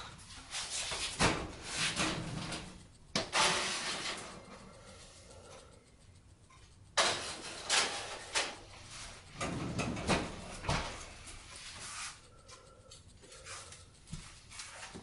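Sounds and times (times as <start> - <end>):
metal pans clattering on stovetop: 7.0 - 8.6.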